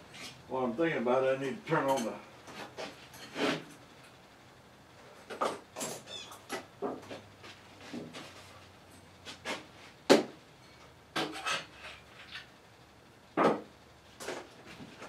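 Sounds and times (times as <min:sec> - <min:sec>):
tools handled on a workbench: 0:10.8 - 0:12.5.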